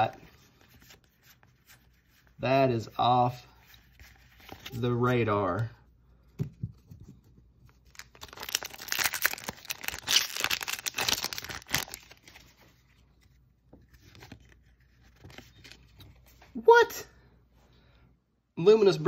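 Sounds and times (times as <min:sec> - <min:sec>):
foil wrapper tearing and crinkling: 0:07.8 - 0:12.4.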